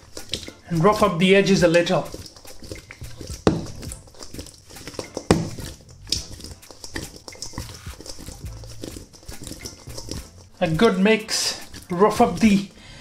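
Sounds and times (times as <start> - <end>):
potatoes tumbling in metal bowl: 0.0 - 12.8.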